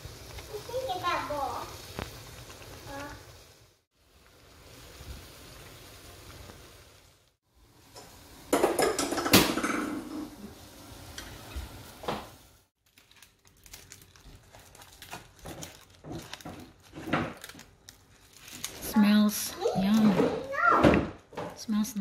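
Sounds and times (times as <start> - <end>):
stew sizzling in pot: 0.0 - 22.0
utensils clattering against pot: 8.5 - 10.2
leaf wrapping crinkling: 12.8 - 20.5.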